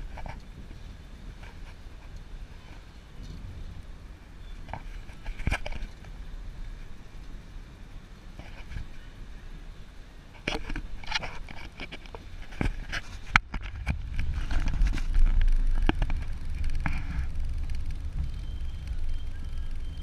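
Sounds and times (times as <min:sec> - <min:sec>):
road and engine rumble in car: 0:00.0 - 0:20.0
sharp clicks and knocks: 0:10.4 - 0:19.0.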